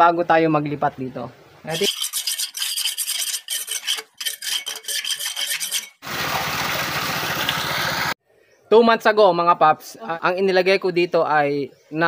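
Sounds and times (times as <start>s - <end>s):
metal scraper rasping on concrete: 1.7s - 6.0s
water pouring from a pipe: 6.0s - 8.2s.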